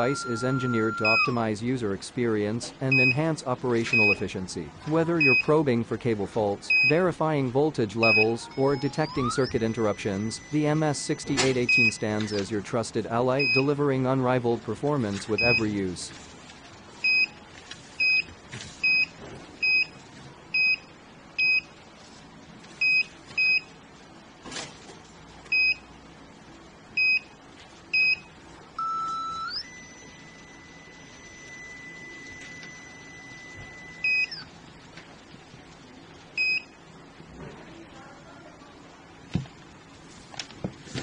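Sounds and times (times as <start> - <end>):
short high beeps: 0.0 - 1.4.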